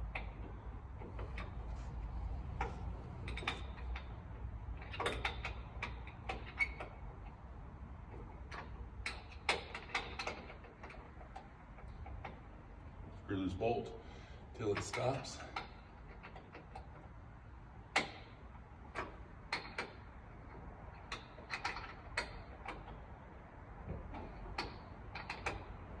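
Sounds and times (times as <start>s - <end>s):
hardware clicks and knocks: 0.0s - 7.4s, 8.0s - 13.0s, 17.9s - 23.1s, 23.8s - 26.0s
steady low hum: 0.0s - 16.2s.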